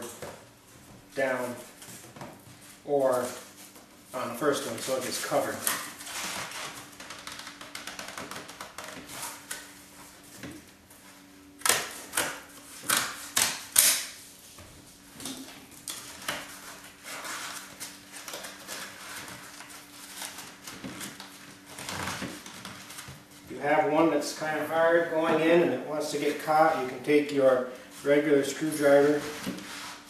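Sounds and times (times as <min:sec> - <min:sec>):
tool scraping cardboard: 0:11.7 - 0:23.1, 0:23.8 - 0:30.0
cardboard rustling and scraping: 0:14.2 - 0:27.1, 0:27.8 - 0:30.0.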